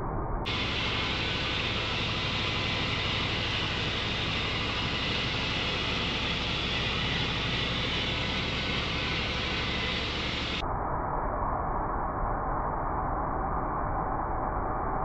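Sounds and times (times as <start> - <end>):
band blade hissing: 0.5 - 10.6
sawmill engine running under load: 0.5 - 10.6.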